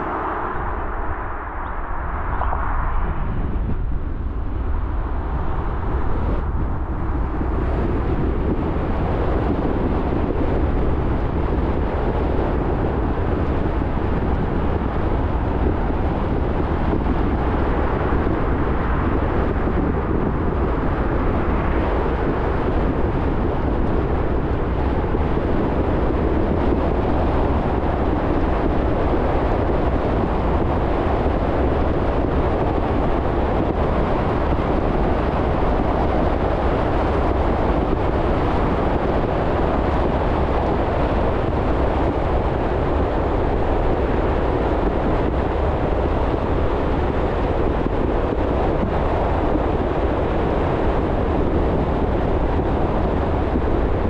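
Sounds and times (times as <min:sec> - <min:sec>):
car road noise: 0:00.0 - 0:12.5
deep low drone: 0:00.0 - 0:54.0.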